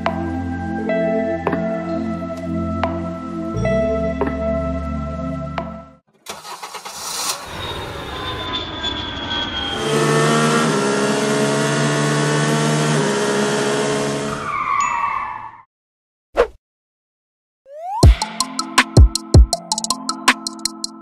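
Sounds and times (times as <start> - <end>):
vehicle engine drone: 6.6 - 14.4.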